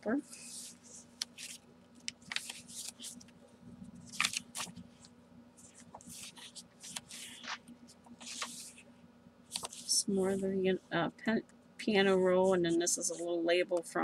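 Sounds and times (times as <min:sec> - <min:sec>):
paper pages rustling: 0:00.3 - 0:08.9, 0:09.5 - 0:09.9.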